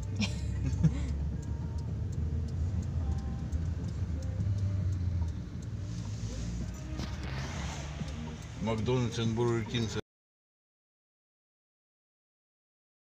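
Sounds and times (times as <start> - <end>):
car cabin rumble while driving: 0.0 - 10.0.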